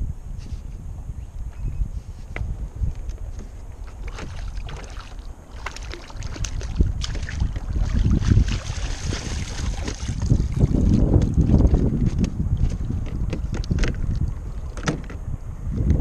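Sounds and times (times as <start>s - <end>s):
wind buffeting microphone: 0.0s - 16.0s
water splashing and dripping: 3.8s - 11.8s.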